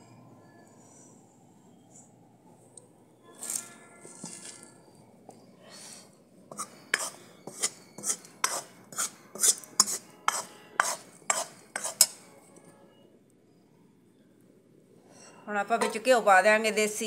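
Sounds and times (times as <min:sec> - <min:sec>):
ladle scraping and clinking in pan: 0:06.5 - 0:12.2.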